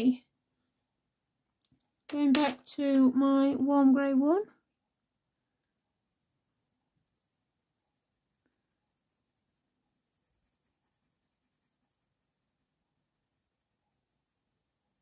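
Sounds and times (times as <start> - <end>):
coloured pencil scratching on paper: 5.4 - 15.0.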